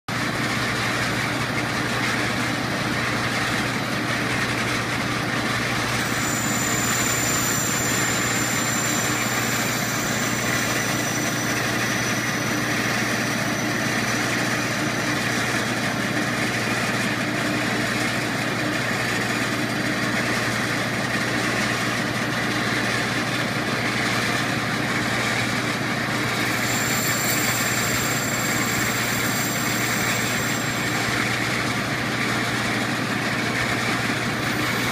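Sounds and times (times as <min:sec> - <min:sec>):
metal lathe running: 0:00.2 - 0:34.9
faint high whine: 0:05.7 - 0:16.6, 0:26.2 - 0:31.9, 0:33.7 - 0:34.9.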